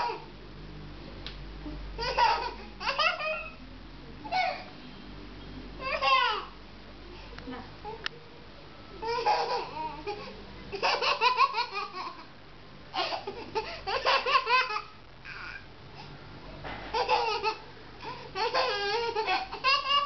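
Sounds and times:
baby laughing: 2.0s - 3.6s, 5.8s - 6.5s, 9.0s - 12.3s, 13.0s - 15.6s, 16.9s - 20.0s.

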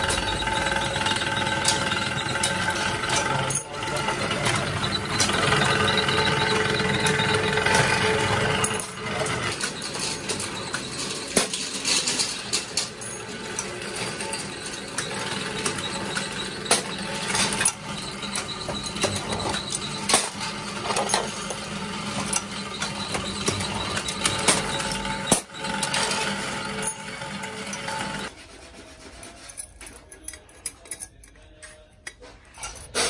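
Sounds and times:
workshop machinery hum: 0.0s - 33.0s
metal keys clinking: 29.5s - 33.0s.

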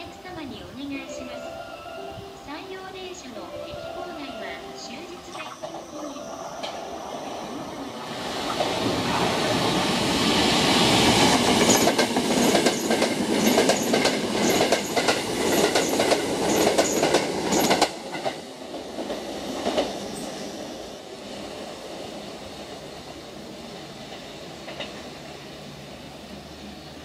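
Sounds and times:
train rumble: 0.0s - 27.0s
wheels clacking over rail joints: 8.0s - 20.4s.

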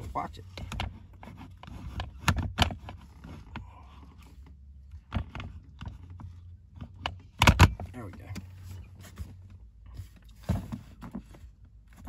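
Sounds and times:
low steady hum: 0.0s - 12.0s
plastic holster clicking and knocking: 6.8s - 7.9s.

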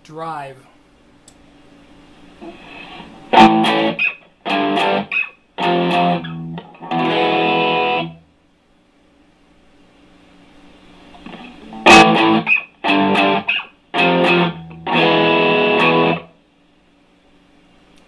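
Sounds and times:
overdriven electric guitar chords: 2.4s - 8.3s, 11.2s - 16.4s.

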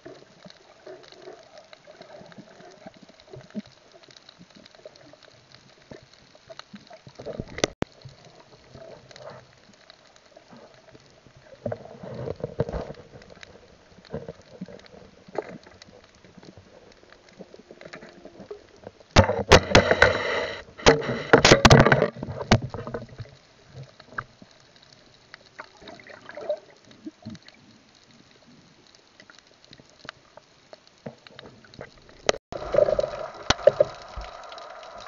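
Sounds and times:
gurgling water: 0.0s - 35.0s
underwater crackle of clicks: 0.0s - 35.0s
bubbling and knocking bursts: 19.2s - 22.6s.

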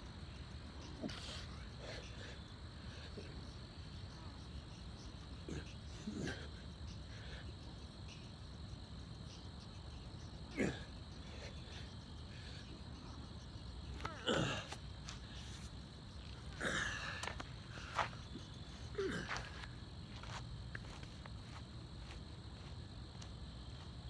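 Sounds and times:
crickets trilling: 0.0s - 24.0s
man exhaling and grunting: 5.4s - 7.4s, 10.5s - 12.6s, 14.0s - 15.4s, 16.5s - 17.4s, 18.9s - 19.6s.

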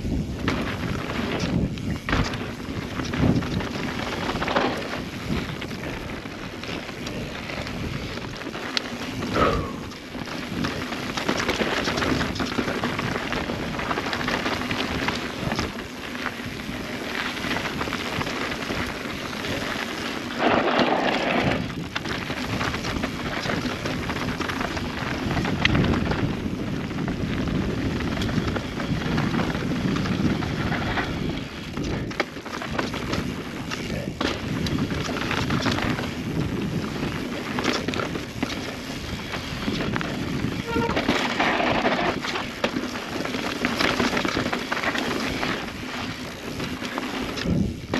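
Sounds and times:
bike rattling: 0.0s - 47.9s
bike tyres on dirt trail: 0.0s - 47.9s.

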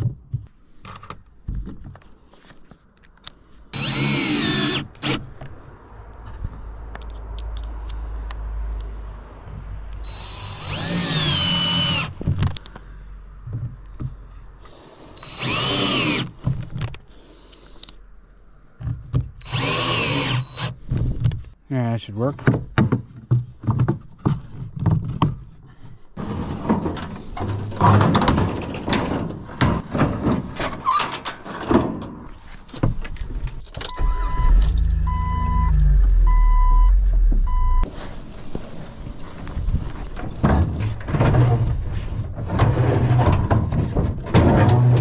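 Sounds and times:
knocks and rattles of handling: 0.0s - 3.3s, 22.4s - 35.0s
vehicle warning chime beeping: 10.0s - 10.7s, 15.2s - 15.5s, 33.8s - 37.9s
low rumble: 33.9s - 37.9s.

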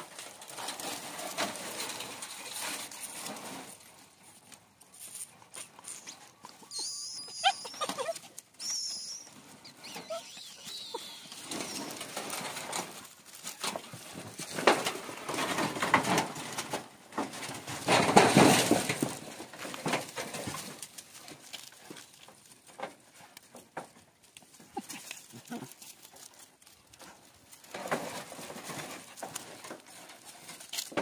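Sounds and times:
bird chirping: 8.6s - 11.8s.

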